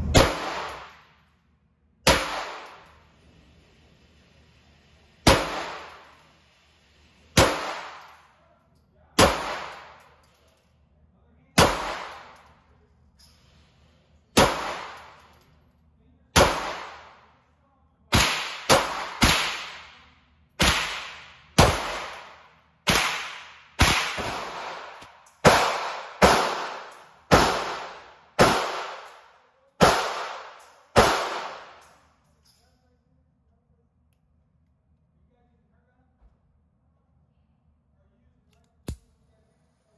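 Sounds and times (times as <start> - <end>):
gunshots with long echo: 0.0 - 1.2, 2.0 - 3.2, 5.2 - 6.3, 7.3 - 8.3, 9.2 - 10.1, 11.6 - 12.5, 14.4 - 15.2, 16.4 - 17.4, 18.1 - 20.0, 20.6 - 31.8.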